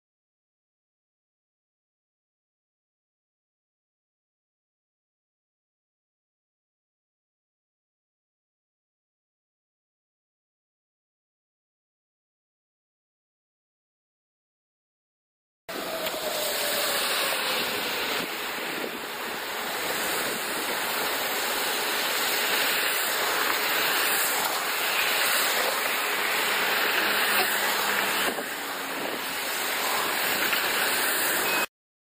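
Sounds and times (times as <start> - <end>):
strong storm wind rushing: 15.7 - 24.7, 25.3 - 31.4.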